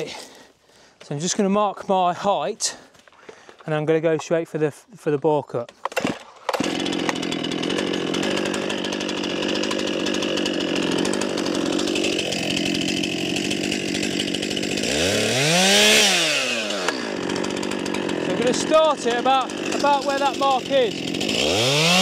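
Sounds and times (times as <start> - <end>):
chainsaw engine idling and revving: 0.0 - 0.5, 5.7 - 22.0.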